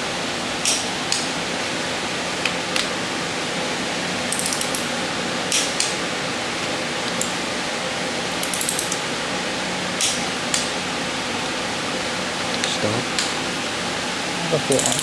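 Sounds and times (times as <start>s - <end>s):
sharp torque wrench clicks: 4.3s - 4.9s, 8.4s - 9.0s, 14.7s - 15.0s
torque wrench ratcheting: 4.3s - 4.9s, 8.4s - 9.0s, 14.8s - 15.0s.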